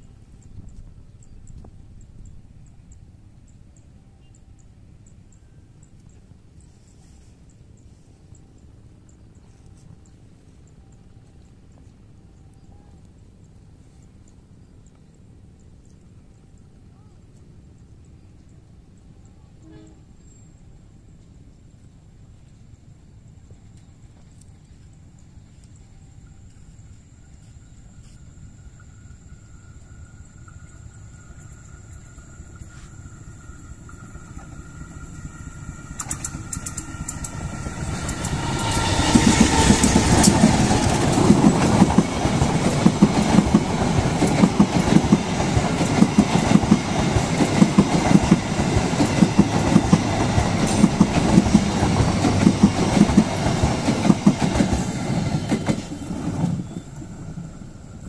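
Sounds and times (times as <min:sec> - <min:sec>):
train wheels clattering on rails: 0:31.2 - 0:58.0.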